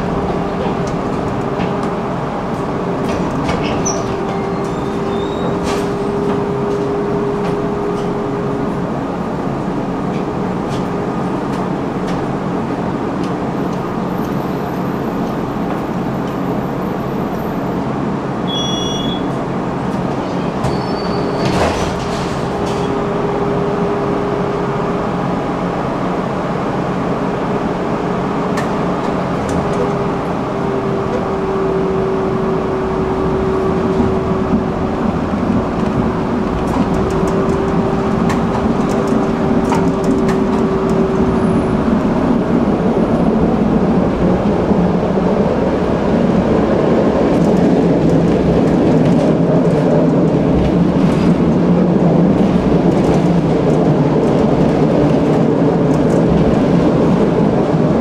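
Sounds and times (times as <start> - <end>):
tram hum: 0.0 - 58.0
tram rumble: 0.0 - 58.0
wheels clicking on rails: 28.4 - 58.0.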